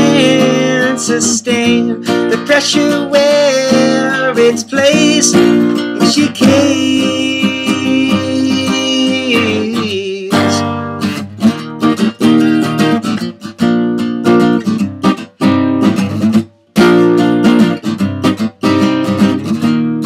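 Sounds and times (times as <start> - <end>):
man singing: 0.0 - 10.9
acoustic guitar strumming: 0.0 - 20.0.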